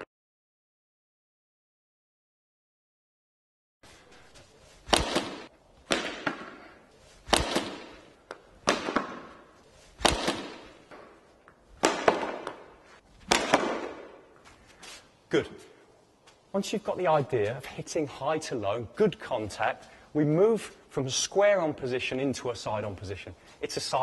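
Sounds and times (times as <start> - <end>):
cricket bat striking ball: 4.9 - 11.2, 11.8 - 14.3.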